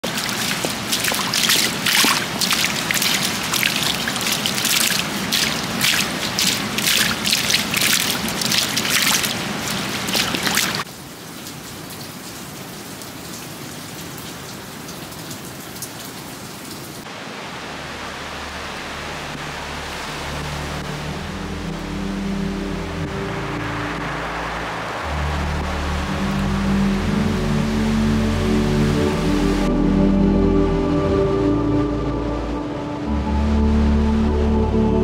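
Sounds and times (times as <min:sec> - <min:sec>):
rainwater running and splashing: 0:00.0 - 0:29.7
heavy rain: 0:00.0 - 0:29.8.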